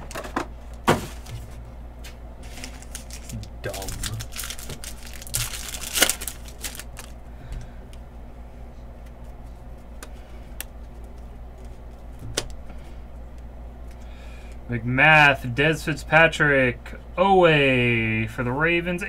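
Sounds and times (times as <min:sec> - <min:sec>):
foil wrapper crinkling and tearing: 0:02.4 - 0:07.2.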